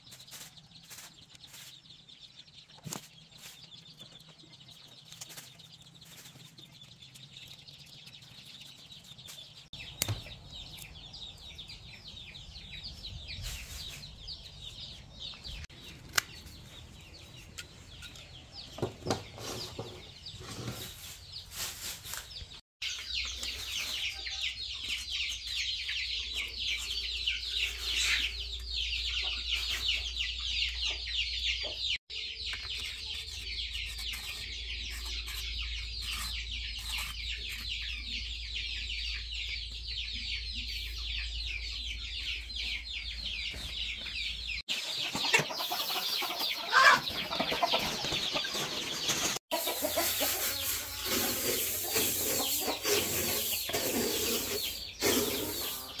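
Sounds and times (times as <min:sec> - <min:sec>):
chicks cheeping: 0:00.0 - 0:56.0
hens clucking: 0:44.7 - 0:56.0.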